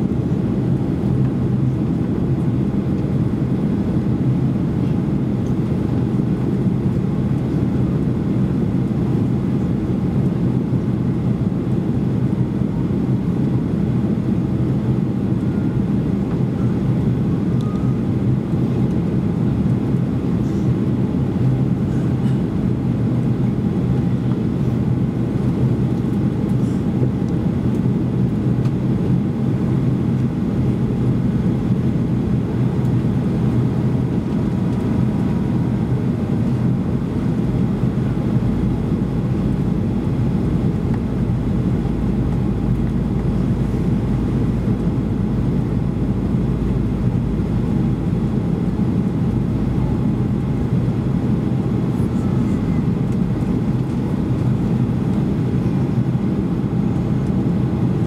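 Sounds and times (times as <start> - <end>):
jet engine drone: 0.0 - 58.0
low steady hum: 0.0 - 58.0
air rushing along fuselage: 14.0 - 58.0.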